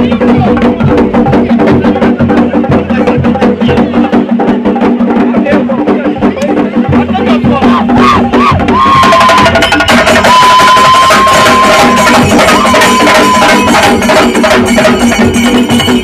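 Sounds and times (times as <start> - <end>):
drums beaten fast with sticks: 0.0 - 16.0
high whistle-like tone: 8.0 - 9.6, 10.2 - 14.1
hand cymbals clashing: 9.6 - 16.0.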